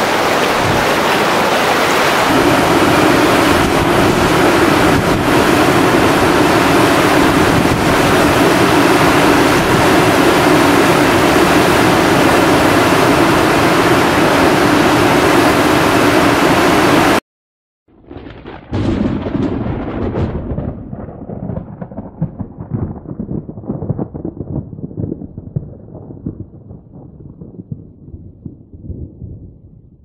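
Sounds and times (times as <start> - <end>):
floodwater rushing down creek: 0.0 - 17.2.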